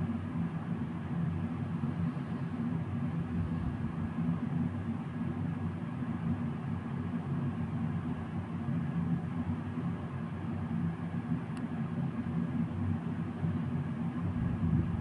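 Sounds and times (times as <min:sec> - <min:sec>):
low rumbling hum: 0:14.2 - 0:15.0.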